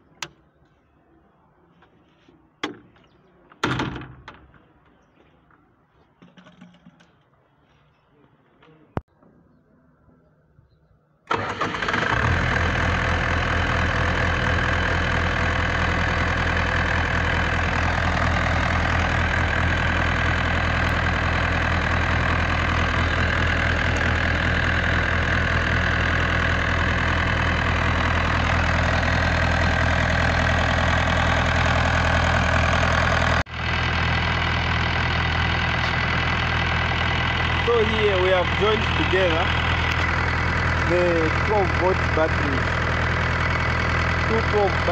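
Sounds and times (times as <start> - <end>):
diesel generator engine running: 11.3 - 44.9.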